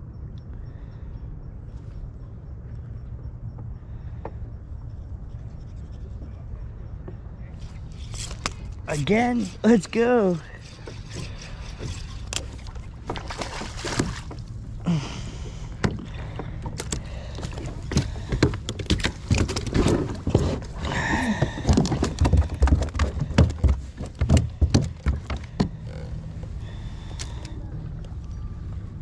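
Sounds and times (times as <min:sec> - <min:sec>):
knocks and thumps on a kayak: 0:10.7 - 0:14.5, 0:15.5 - 0:26.2.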